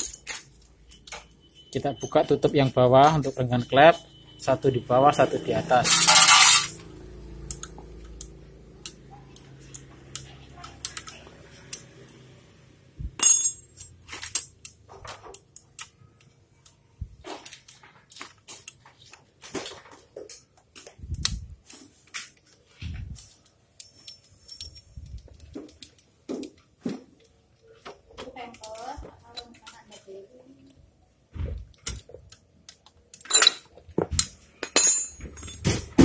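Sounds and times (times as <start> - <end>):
metal clatter: 5.8 - 6.8
metallic tool clicks: 7.4 - 12.2
ringing clink: 13.2 - 14.0.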